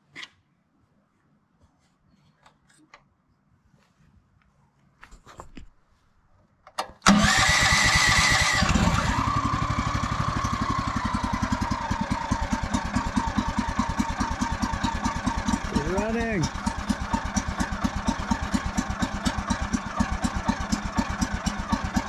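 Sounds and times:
engine cranking and running: 7.0s - 22.0s.

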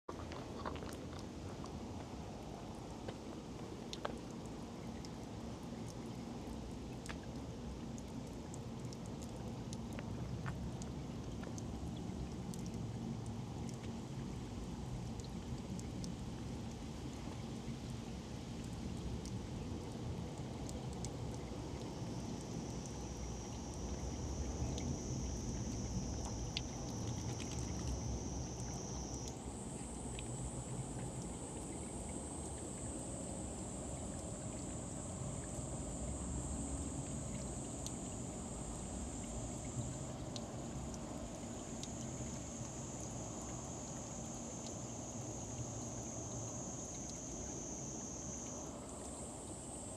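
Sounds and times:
tap water trickling: 0.1s - 49.6s
water drips clicking: 0.2s - 18.0s, 18.6s - 49.2s
cat lapping water: 18.5s - 28.8s
steady low rumble: 20.0s - 42.8s
high buzz: 22.0s - 40.9s.

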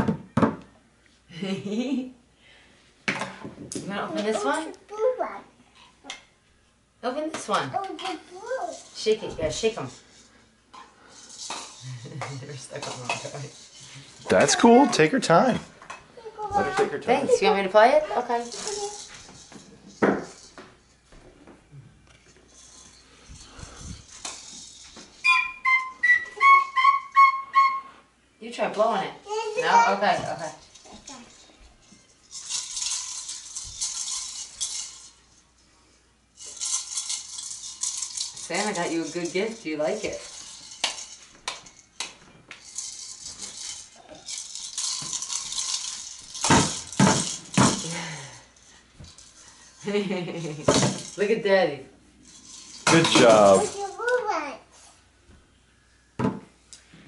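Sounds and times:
toys tapping and rustling: 7.3s - 25.3s, 29.5s - 35.2s, 36.4s - 51.3s, 52.3s - 54.3s.

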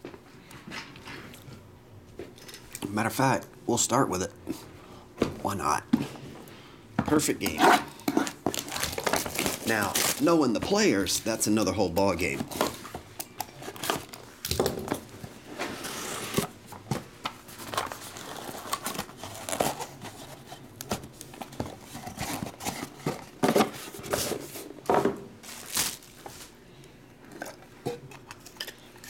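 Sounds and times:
plastic wrap crinkling and tearing: 8.3s - 10.5s, 17.5s - 22.8s, 25.4s - 26.5s.

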